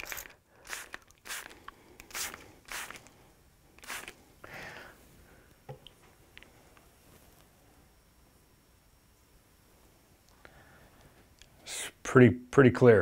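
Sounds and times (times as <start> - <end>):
spray bottle squirting: 0.0 - 3.1, 3.8 - 4.2.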